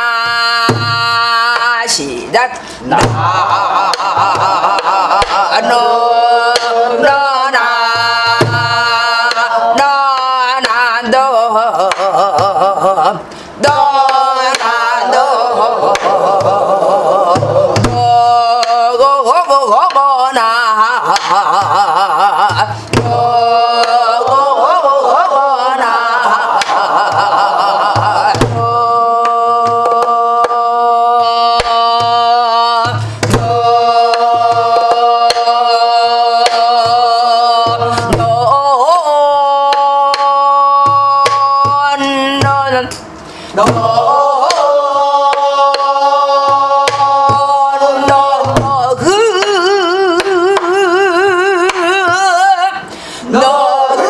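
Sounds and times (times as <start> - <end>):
woman singing long held notes: 43.5 - 54.0.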